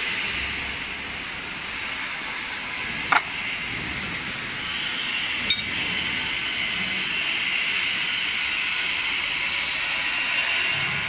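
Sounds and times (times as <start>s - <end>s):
hissing workshop machinery: 0.0s - 11.0s
sharp metallic clink: 5.5s - 5.8s.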